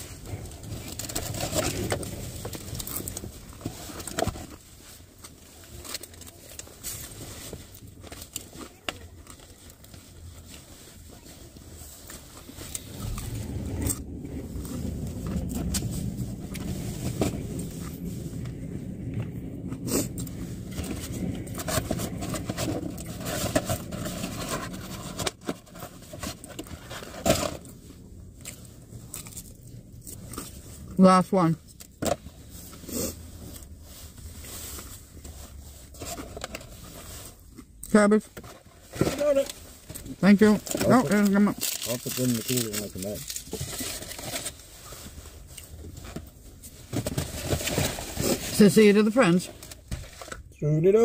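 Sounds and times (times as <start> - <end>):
vehicle rumble: 0.0 - 51.0.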